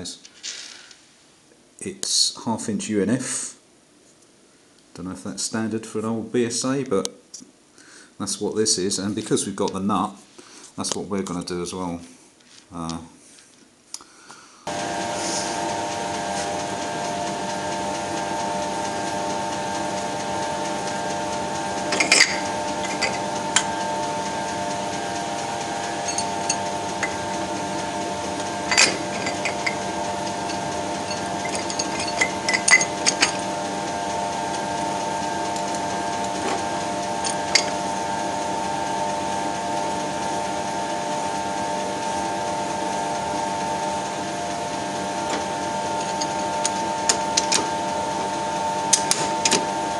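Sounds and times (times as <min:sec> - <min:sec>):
workshop machine humming: 0:14.7 - 0:49.9.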